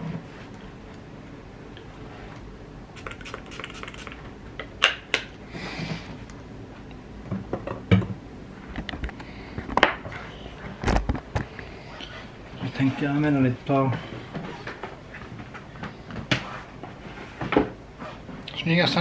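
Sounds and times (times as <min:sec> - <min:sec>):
perfume spray hiss: 0:03.0 - 0:04.2.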